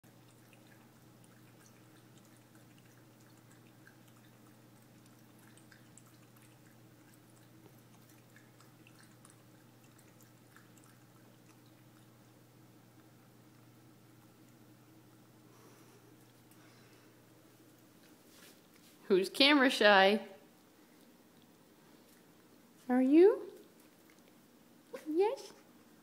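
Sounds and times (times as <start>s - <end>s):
puppy lapping water: 0.0s - 16.8s
low steady hum: 0.0s - 26.0s.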